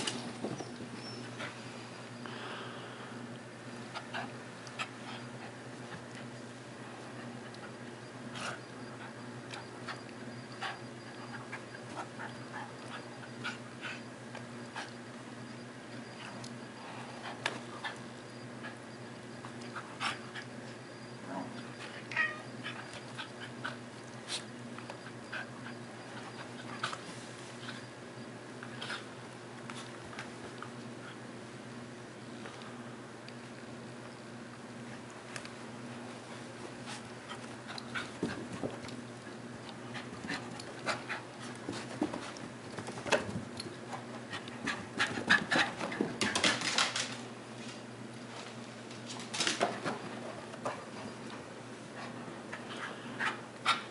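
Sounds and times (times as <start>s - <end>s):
cat meowing: 22.1s - 22.5s.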